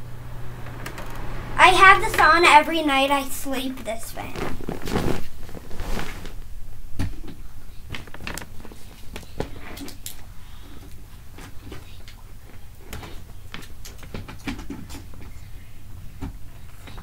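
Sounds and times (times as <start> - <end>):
electric fan humming: 0.0 - 6.9
sharp clicks and creaks: 0.6 - 1.3.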